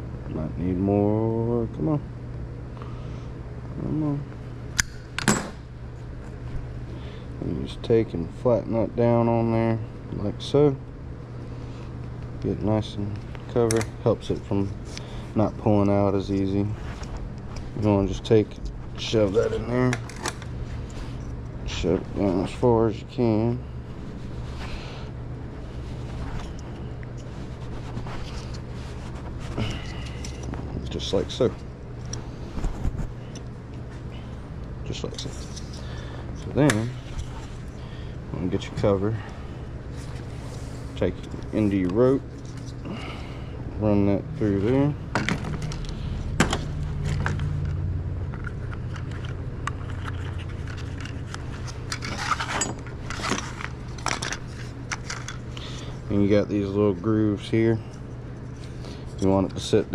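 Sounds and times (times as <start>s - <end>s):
low mechanical hum: 0.0s - 59.9s
scraping and rustling: 23.9s - 34.3s, 48.4s - 56.1s.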